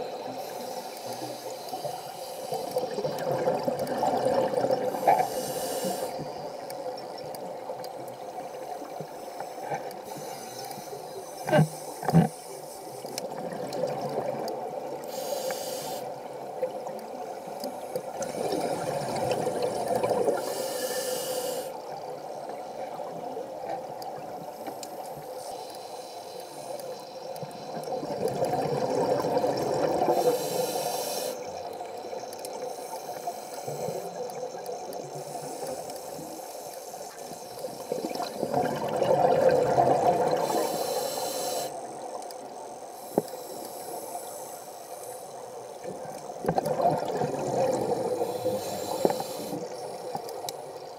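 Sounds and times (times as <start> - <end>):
diver breathing through regulator: 4.9 - 6.2, 15.1 - 16.2, 19.5 - 21.8, 30.1 - 31.4, 40.4 - 41.8, 47.8 - 50.2
bubbling exhalations: 38.0 - 40.5, 46.4 - 48.3.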